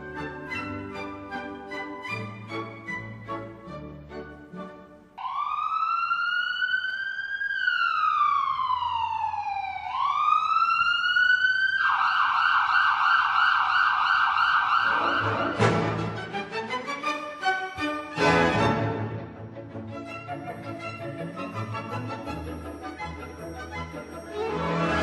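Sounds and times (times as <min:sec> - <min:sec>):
emergency siren wailing and yelping: 0:05.2 - 0:15.6.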